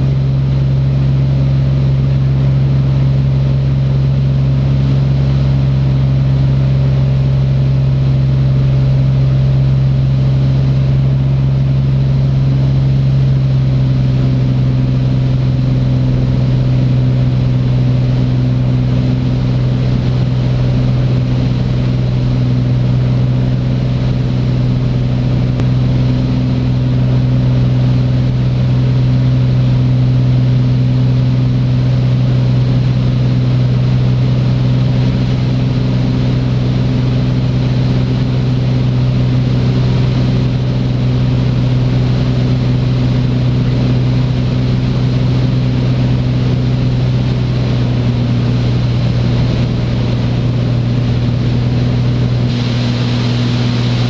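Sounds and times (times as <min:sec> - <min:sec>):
propeller plane engine droning: 0:00.0 - 0:54.0.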